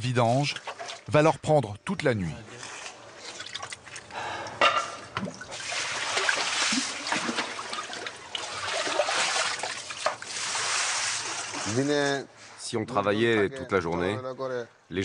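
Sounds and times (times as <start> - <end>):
water splashing from bucket: 0.4 - 1.2, 3.2 - 4.1, 5.0 - 12.1.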